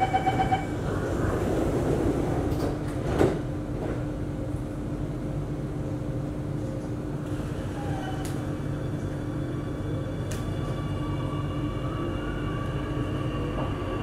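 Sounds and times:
standing train carriage hum: 0.0 - 14.0
sliding train doors closing: 0.4 - 4.3.

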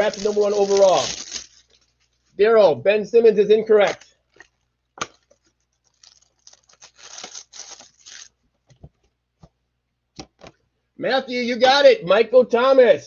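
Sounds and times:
cardboard scraping and tearing: 0.0 - 1.7.

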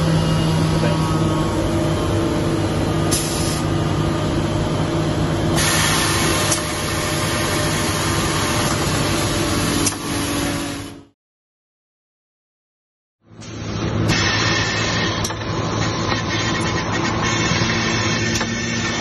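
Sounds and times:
sewing machine mechanical hum: 0.0 - 11.1.

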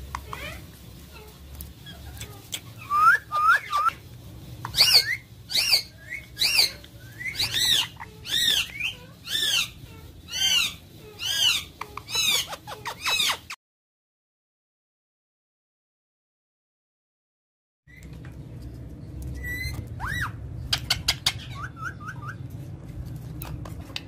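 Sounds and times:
parakeet chirps: 0.0 - 13.6, 19.3 - 22.4
parakeet shrill squawks: 4.7 - 13.6, 19.4 - 22.4.

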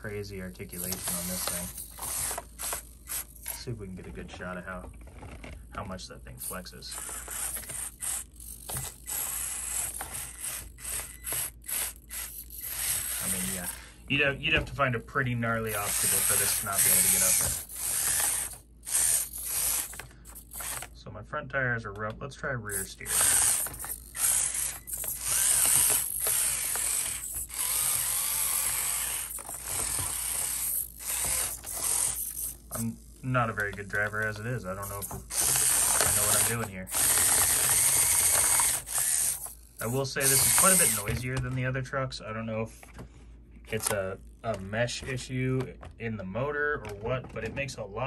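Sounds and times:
small electric motor whirring: 0.0 - 3.7, 6.3 - 14.0, 15.4 - 20.9, 22.7 - 41.3.

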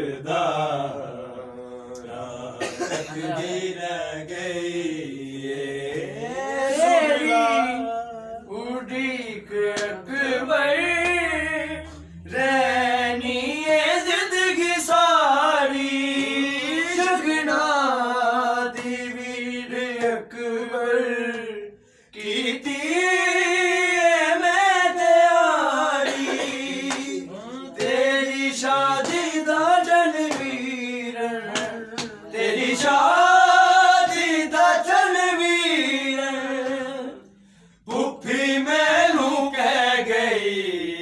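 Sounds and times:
men chanting a lament: 0.0 - 41.0.

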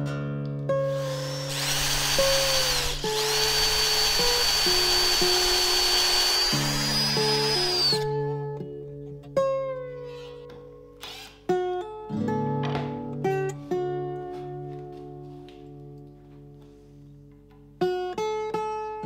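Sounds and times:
power drill whine and grinding: 0.9 - 8.1, 11.0 - 11.4.

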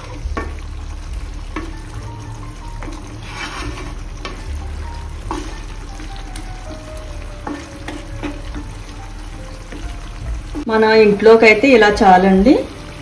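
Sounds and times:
gravy sizzling in oil: 0.0 - 13.0
spatula scraping and knocking pan: 2.7 - 10.7.

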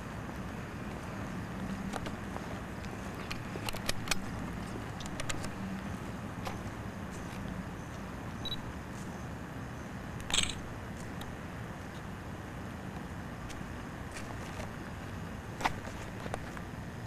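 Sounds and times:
low hum and hiss: 0.0 - 17.0
camcorder handling noise: 10.3 - 10.6.

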